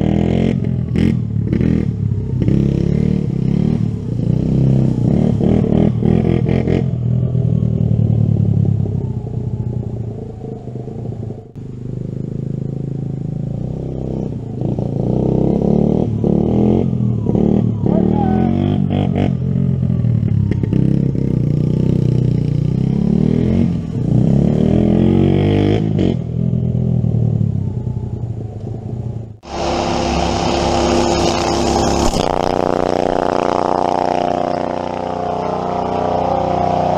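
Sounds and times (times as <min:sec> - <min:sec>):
steady motor whine: 0:29.4 - 0:36.5
small engine revving: 0:29.4 - 0:36.9.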